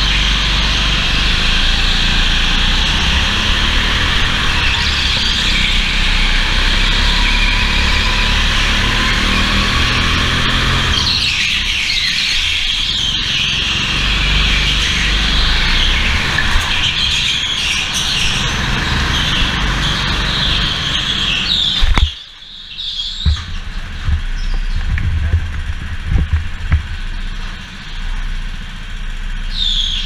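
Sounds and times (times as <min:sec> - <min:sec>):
go-kart engine and wind rumble: 0:00.0 - 0:30.0
bumps: 0:23.2 - 0:27.8.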